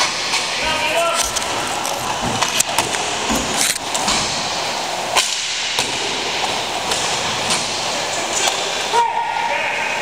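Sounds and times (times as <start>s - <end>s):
hockey sticks cracking on puck: 0.3s - 4.1s.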